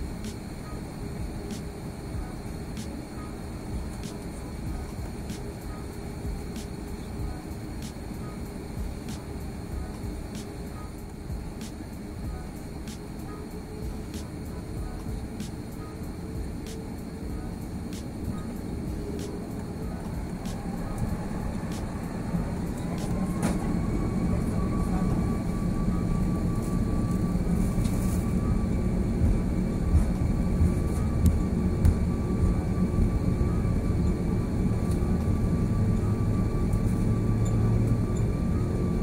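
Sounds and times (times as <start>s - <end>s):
jet engines whining: 0.0s - 39.0s
low rumble: 18.2s - 39.0s.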